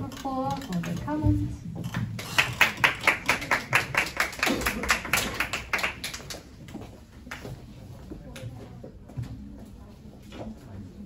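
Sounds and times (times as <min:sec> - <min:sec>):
group clapping: 0:02.2 - 0:07.5.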